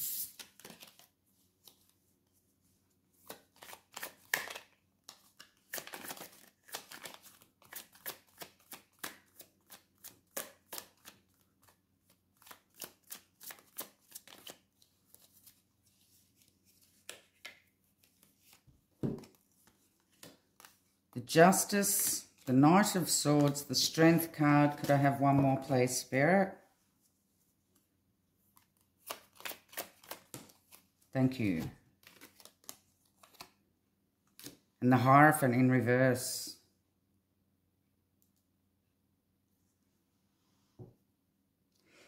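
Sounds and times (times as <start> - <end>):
cards shuffling clicks: 0.0 - 1.9, 3.2 - 15.6, 16.3 - 20.8, 28.6 - 30.9, 32.0 - 33.6.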